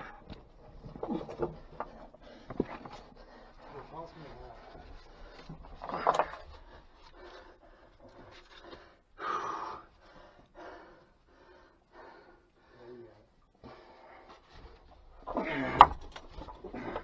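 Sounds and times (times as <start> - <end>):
person panting: 6.6 - 12.8.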